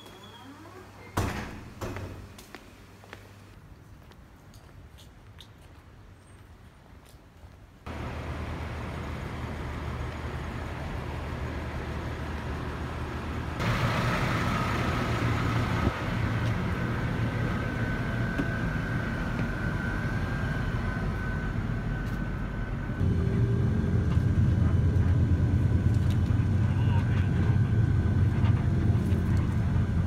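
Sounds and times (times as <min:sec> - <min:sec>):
bus engine humming: 0:07.8 - 0:30.0
faint engine whine: 0:07.9 - 0:30.0.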